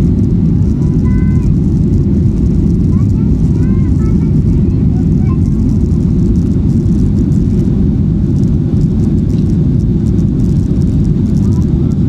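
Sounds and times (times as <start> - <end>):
jet engine cabin rumble: 0.0 - 12.0.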